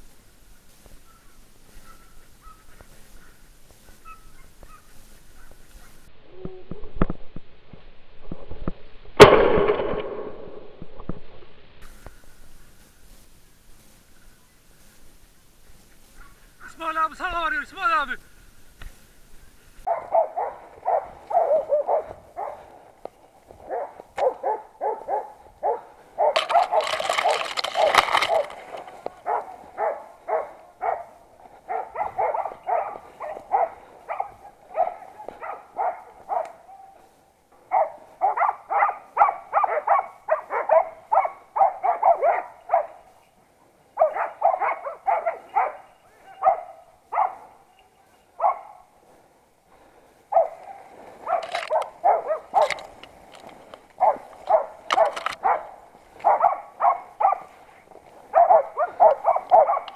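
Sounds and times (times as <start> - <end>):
dogs barking rapidly: 19.8 - 22.8, 23.5 - 36.9, 37.6 - 43.1, 44.0 - 47.7, 48.4 - 48.9, 49.8 - 53.0, 53.9 - 59.9
sharp clicks: 26.4 - 29.2, 54.4 - 55.4.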